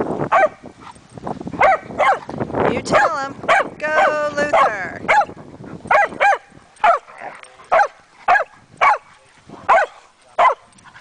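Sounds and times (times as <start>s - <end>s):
dog barking: 0.3s - 0.6s, 1.6s - 2.3s, 2.9s - 9.1s, 9.7s - 10.7s.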